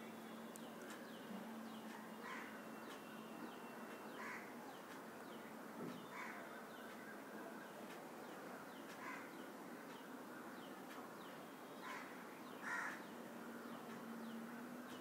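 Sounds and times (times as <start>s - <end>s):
low steady hiss: 0.0s - 15.0s
crows cawing: 2.2s - 2.6s, 4.2s - 4.6s, 6.1s - 6.4s, 9.0s - 9.4s, 11.8s - 13.1s.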